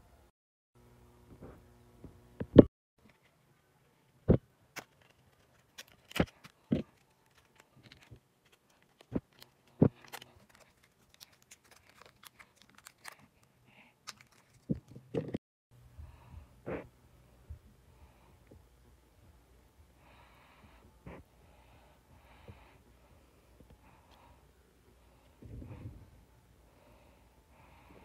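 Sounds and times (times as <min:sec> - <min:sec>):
blister pack clicks and rustling: 0:04.7 - 0:15.2.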